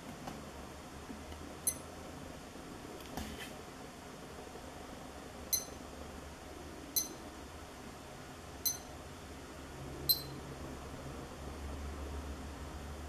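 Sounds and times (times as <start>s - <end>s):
digital watch beeps: 5.5s - 5.8s, 7.0s - 7.2s, 8.6s - 8.9s, 10.1s - 10.4s.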